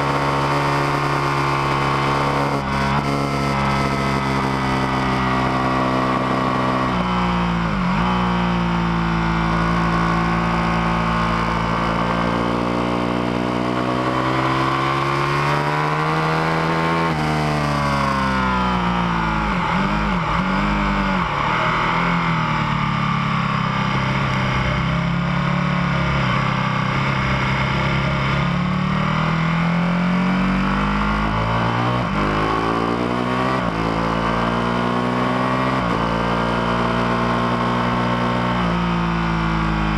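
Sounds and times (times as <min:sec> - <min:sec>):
motorcycle engine at speed: 0:00.0 - 0:39.9.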